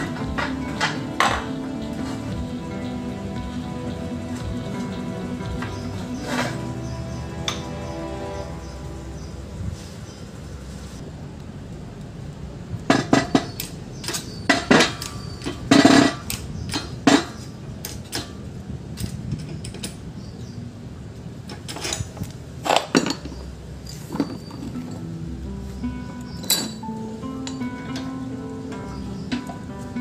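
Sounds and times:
metal tools clanking: 0.0 - 7.8, 12.9 - 18.4, 19.0 - 20.1, 21.5 - 25.1, 25.9 - 30.0
low steady hum: 0.0 - 30.0.

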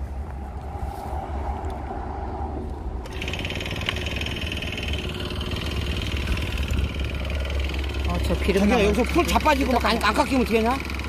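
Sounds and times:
brush cutter engine running: 3.0 - 11.0.

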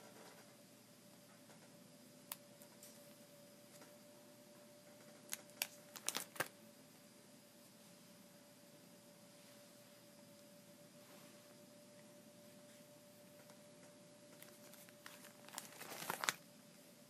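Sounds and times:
faint steady hum: 0.0 - 17.0
plastic binder pages clicking: 5.0 - 6.5, 14.4 - 16.4.

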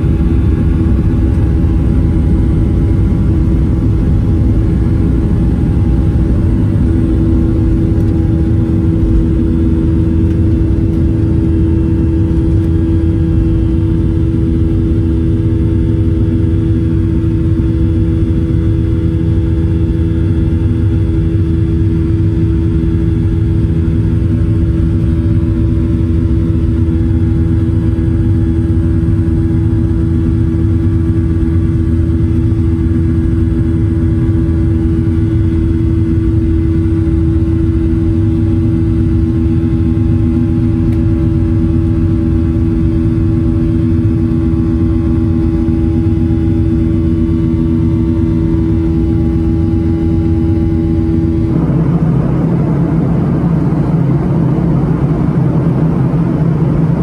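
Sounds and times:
jet engine rumble in cabin: 0.0 - 57.0
steady engine tone: 0.0 - 57.0.

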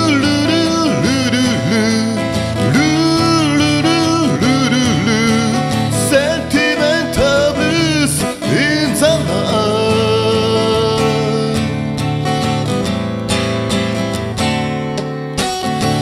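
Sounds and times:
man singing: 0.0 - 12.1
acoustic guitar strumming: 0.0 - 16.0.

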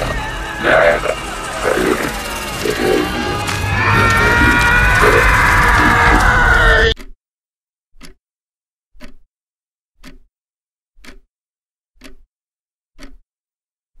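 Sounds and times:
clock ticking: 0.0 - 7.2, 8.0 - 8.2, 9.0 - 9.3, 10.0 - 10.3, 11.0 - 11.3, 12.0 - 12.3, 13.0 - 13.2.

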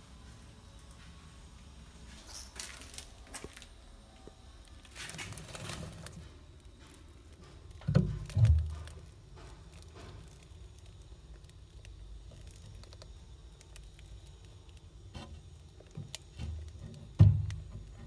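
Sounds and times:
mice scratching and shuffling: 4.6 - 18.0.

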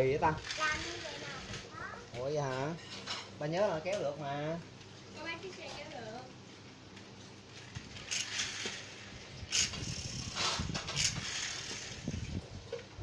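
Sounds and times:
toy truck spring motor whirring: 0.4 - 1.6, 7.6 - 12.2
wheels dragged over bamboo mat: 7.6 - 12.4.

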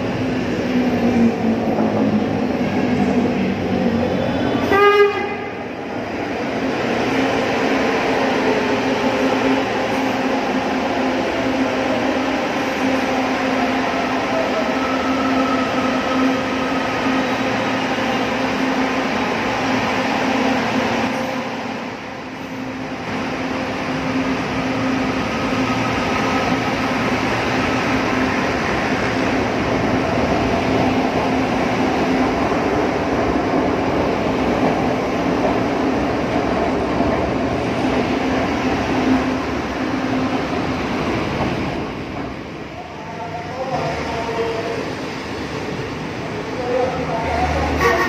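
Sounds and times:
train hum: 0.0 - 48.0
train wheels rumbling on track: 0.0 - 48.0
train horn blast: 4.6 - 5.7, 47.8 - 48.0.

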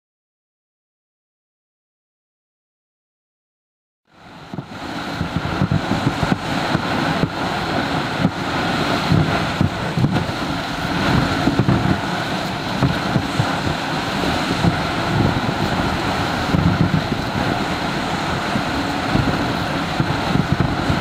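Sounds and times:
wind buffeting microphone: 4.2 - 21.0
sled dragged over hard snow: 4.7 - 21.0.

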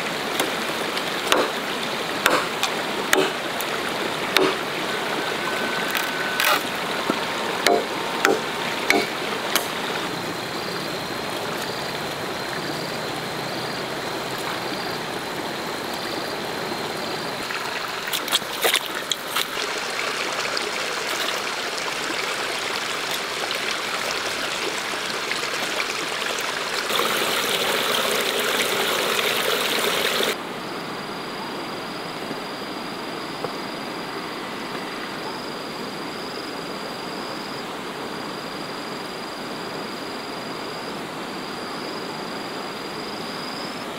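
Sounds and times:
falling water hiss: 0.0 - 30.4
high insect drone: 2.0 - 43.9
sharp knocks: 7.7 - 9.7.

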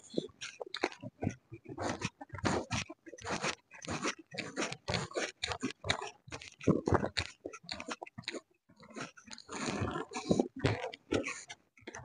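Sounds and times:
person chewing with wet smacks: 0.0 - 12.0.

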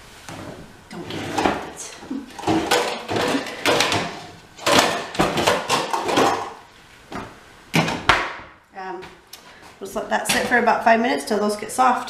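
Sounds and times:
metal pots and lids clattering: 0.9 - 6.6.

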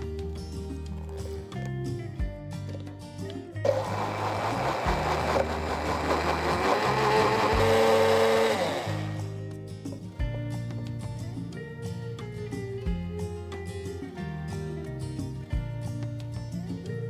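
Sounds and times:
hand blender churning water: 3.7 - 9.3.

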